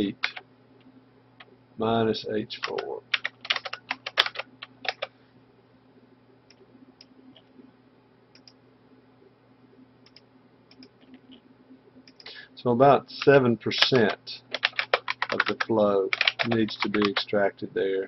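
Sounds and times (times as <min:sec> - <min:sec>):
typing on computer keyboard: 0:00.2 - 0:00.4, 0:02.6 - 0:05.1, 0:13.8 - 0:17.3.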